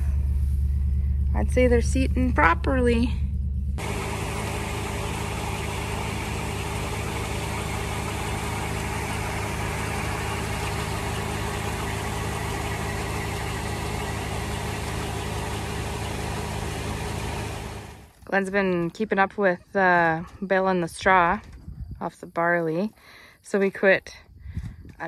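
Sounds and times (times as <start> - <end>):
tractor engine running: 0.0 - 19.4.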